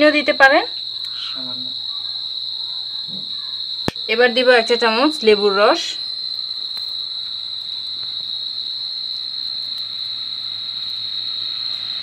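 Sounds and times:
high-pitched whine: 0:03.0 - 0:12.0.

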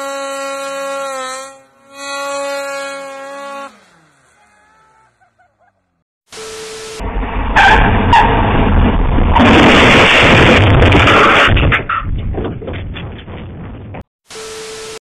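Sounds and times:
snowmobile engine at high revs: 0:00.0 - 0:05.8.

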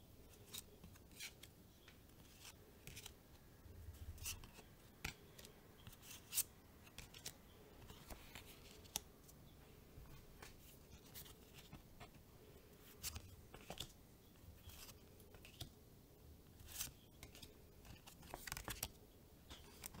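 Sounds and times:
cards sliding and flicking: 0:00.4 - 0:01.5, 0:02.2 - 0:03.2, 0:04.2 - 0:09.1, 0:16.6 - 0:18.9.

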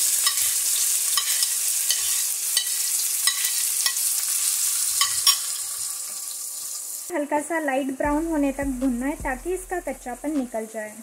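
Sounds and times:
onion sizzling in oil: 0:00.0 - 0:08.0.

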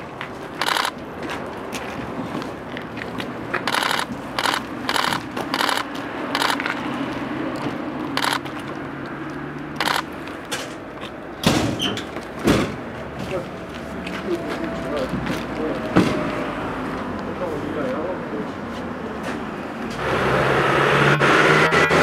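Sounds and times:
camera shutters clicking: 0:00.6 - 0:01.0, 0:03.6 - 0:06.8, 0:08.1 - 0:08.6, 0:09.8 - 0:10.1.

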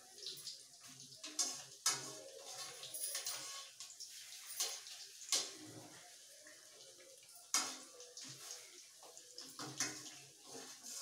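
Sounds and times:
fritters sizzling in hot oil: 0:00.0 - 0:11.0
metal spoon clinking and scraping: 0:01.3 - 0:05.5.

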